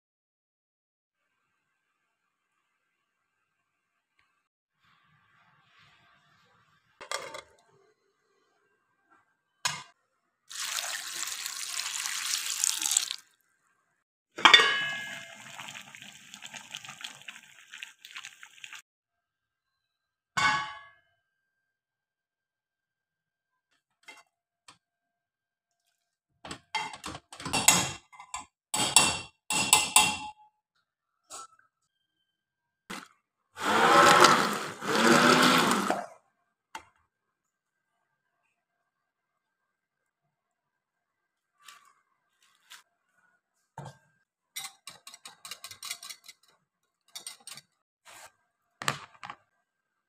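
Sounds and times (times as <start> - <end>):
masher scraping metal pot: 33.6 - 36.1.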